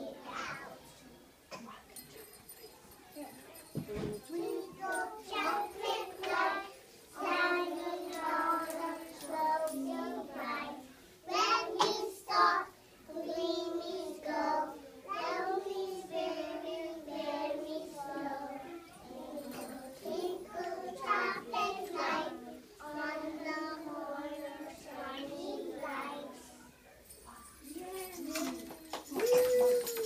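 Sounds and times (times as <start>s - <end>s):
children singing together: 4.3s - 26.6s.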